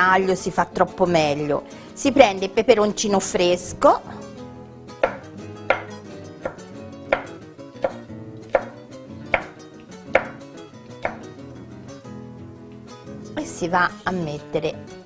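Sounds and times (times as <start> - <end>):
knife knocking on cutting board: 5.0 - 10.4, 11.0 - 11.3.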